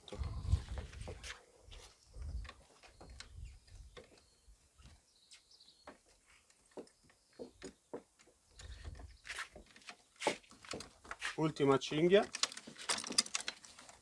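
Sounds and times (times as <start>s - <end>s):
straps and buckles clicking: 5.9s - 14.0s.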